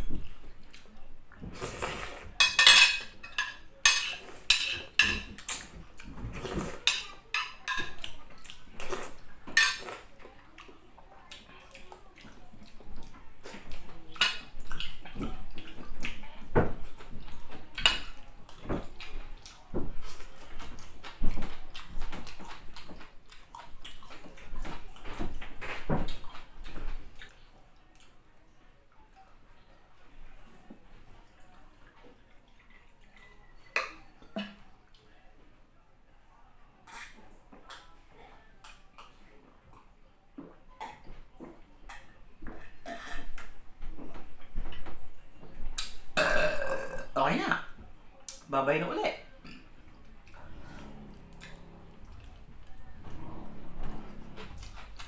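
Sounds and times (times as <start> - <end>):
chewing: 0.0 - 2.4, 5.2 - 28.2, 30.3 - 35.2, 36.8 - 40.0, 49.4 - 55.0
cutlery clinking against plate: 2.3 - 8.2, 9.5 - 10.1, 41.9 - 43.6.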